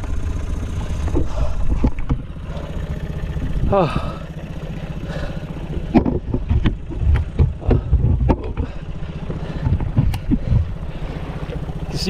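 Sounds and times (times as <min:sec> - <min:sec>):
outboard motor idling: 0:00.0 - 0:12.0
thumps and short knocks: 0:05.9 - 0:08.8, 0:09.6 - 0:10.7.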